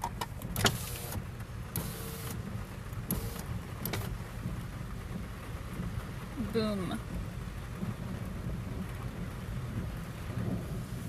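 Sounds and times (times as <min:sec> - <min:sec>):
rainstorm rumble: 0:00.0 - 0:11.0
electric window motor whirring: 0:00.6 - 0:02.4, 0:03.1 - 0:04.1.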